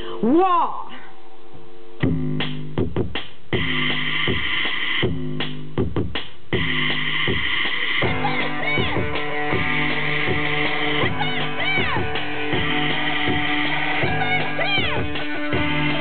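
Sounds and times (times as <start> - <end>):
drum machine beat: 2.0 - 16.0
synthesizer: 6.6 - 16.0.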